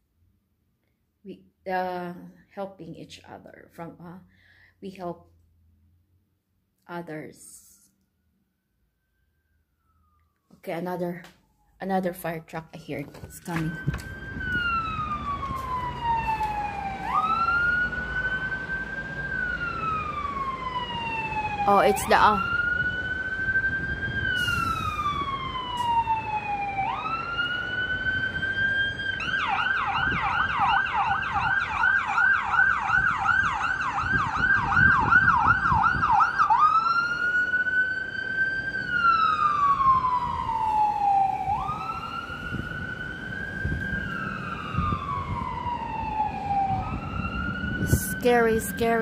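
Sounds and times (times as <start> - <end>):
fire truck siren wailing: 7.6 - 12.2, 12.8 - 49.0
street traffic rumble: 10.6 - 49.0.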